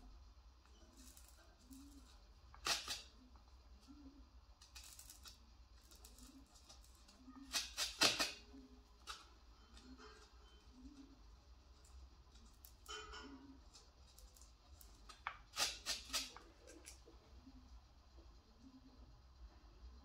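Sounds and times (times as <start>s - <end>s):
faint low hum: 0.0s - 20.0s
pen tip scratching gourd shell: 0.7s - 3.2s, 4.6s - 12.9s, 13.6s - 17.0s.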